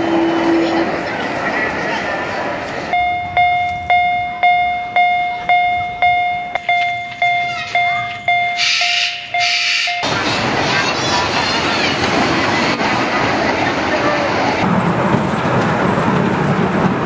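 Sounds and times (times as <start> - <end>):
crossing signal bell dinging: 2.9 - 10.4
miniature train running: 8.6 - 12.6.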